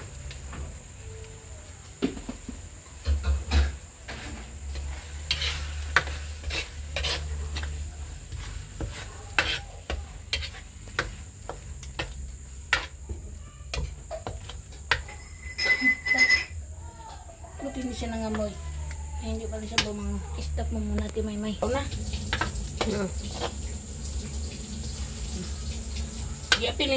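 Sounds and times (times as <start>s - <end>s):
frying sizzle: 0.0s - 26.9s
metal spatula scraping a wok: 3.5s - 13.0s, 13.7s - 16.6s, 22.0s - 25.2s.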